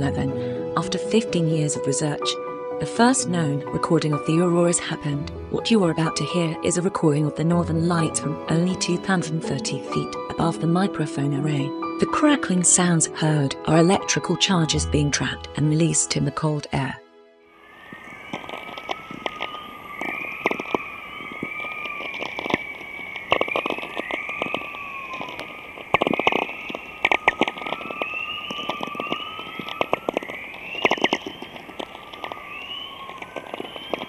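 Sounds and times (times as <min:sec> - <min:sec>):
rising whistling tones: 0:17.6 - 0:34.0
crackling pops and clicks: 0:17.9 - 0:34.0.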